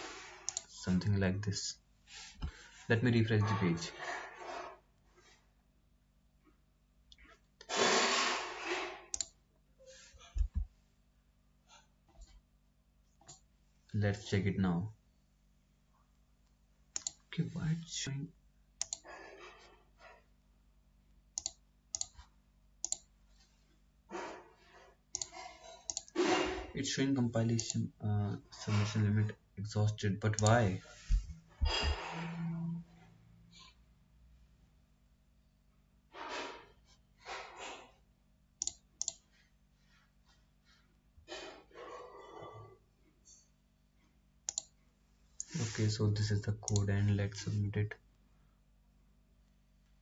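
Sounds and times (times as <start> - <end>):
computer mouse clicks: 0.5 - 0.7, 9.1 - 9.4, 17.0 - 17.2, 18.8 - 19.1, 21.4 - 23.1, 25.1 - 26.2, 27.6 - 27.8, 38.6 - 39.3, 44.5 - 44.8.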